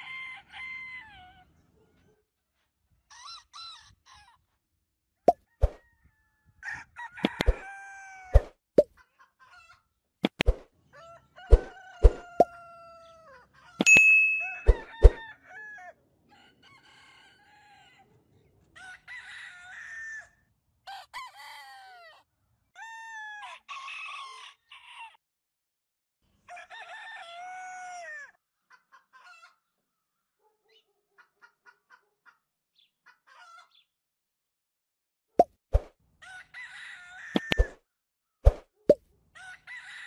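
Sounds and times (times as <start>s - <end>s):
rooster crowing: 0.0s - 1.4s, 5.8s - 8.4s, 10.9s - 13.4s, 14.6s - 18.0s, 18.8s - 22.2s, 22.8s - 25.2s, 26.5s - 28.4s, 36.2s - 37.7s, 39.4s - 40.0s.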